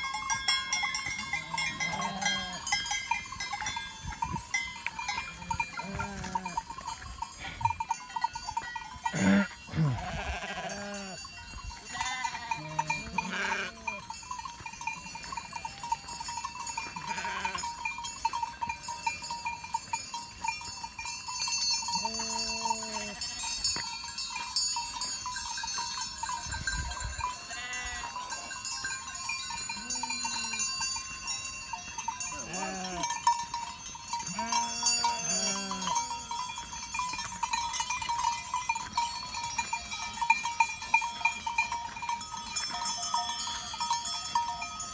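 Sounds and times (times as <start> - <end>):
livestock bells clanking: 0.0 - 44.9
animals bleating: 1.1 - 2.8, 5.2 - 6.6, 9.0 - 11.2, 11.8 - 14.2, 17.0 - 17.7, 21.9 - 23.6, 27.4 - 28.2, 29.7 - 30.7, 32.3 - 33.2, 34.2 - 36.1.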